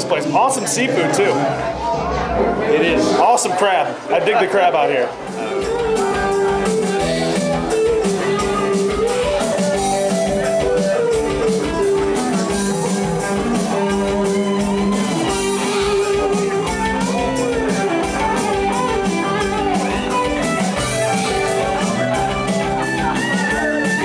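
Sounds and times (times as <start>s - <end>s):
live band playing: 0.0s - 24.0s
electric guitar: 5.1s - 24.0s
drum beat: 5.2s - 24.0s.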